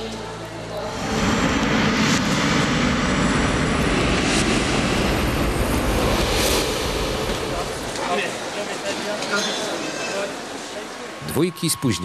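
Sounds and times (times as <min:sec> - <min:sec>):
jet engines running: 0:00.7 - 0:08.8.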